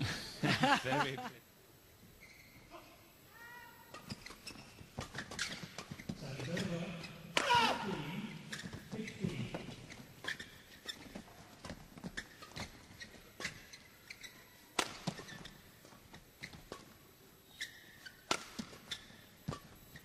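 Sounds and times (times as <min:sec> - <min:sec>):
shoe squeaks on court: 0:02.1 - 0:02.7, 0:03.9 - 0:07.6, 0:08.2 - 0:20.0
racket hitting shuttlecock: 0:03.9 - 0:06.7, 0:07.3 - 0:08.8, 0:11.6 - 0:15.6, 0:17.6 - 0:19.8.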